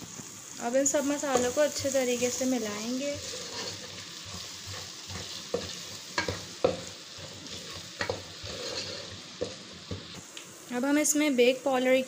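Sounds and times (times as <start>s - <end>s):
food sizzling in a pot: 0.0s - 12.0s
spatula scraping a metal pot: 3.0s - 9.6s.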